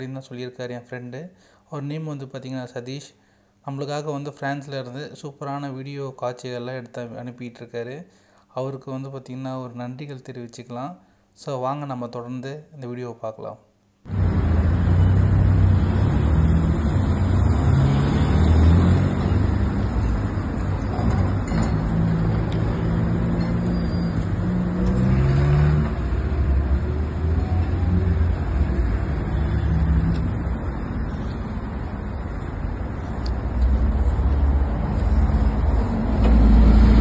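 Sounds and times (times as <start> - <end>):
car engines passing on road: 14.1 - 37.0.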